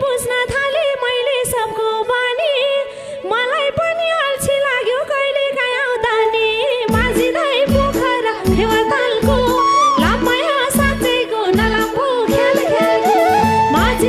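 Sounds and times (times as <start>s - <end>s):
woman singing wavering melody: 3.4s - 14.0s
folk band playing: 6.9s - 14.0s.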